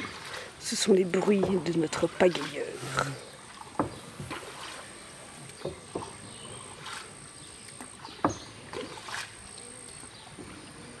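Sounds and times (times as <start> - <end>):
paddle splashing in water: 0.0 - 11.0
paddle knocking on boat: 1.2 - 2.5, 3.6 - 4.7, 5.6 - 6.2, 8.0 - 9.0.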